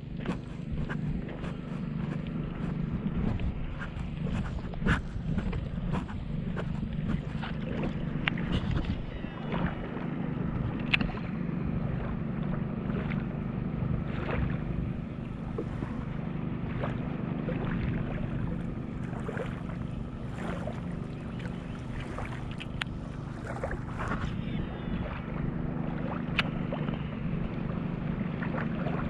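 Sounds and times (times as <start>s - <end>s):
wind buffeting microphone: 0.0s - 13.0s
choppy lake water: 0.0s - 29.0s
light clicks and splashes: 0.0s - 29.0s
steady low hum: 0.0s - 29.0s.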